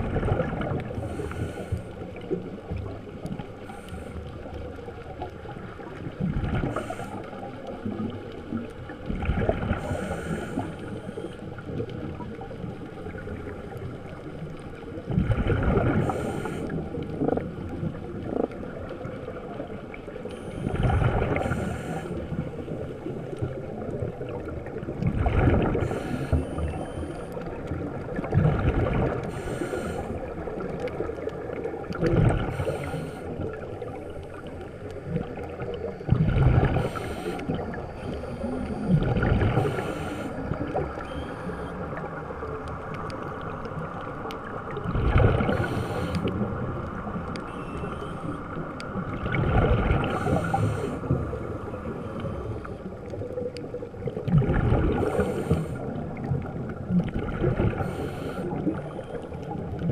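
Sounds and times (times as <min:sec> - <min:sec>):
exhaled bubbles bursting underwater: 0:00.0 - 0:03.6, 0:04.2 - 0:59.9
watery hiss: 0:00.9 - 0:02.3, 0:06.4 - 0:07.4, 0:09.6 - 0:11.4, 0:15.8 - 0:17.0, 0:20.3 - 0:22.8, 0:25.6 - 0:27.2, 0:29.0 - 0:30.7, 0:32.3 - 0:34.4, 0:36.6 - 0:40.7, 0:45.3 - 0:46.4, 0:49.8 - 0:51.4, 0:54.9 - 0:56.0, 0:57.6 - 0:58.8.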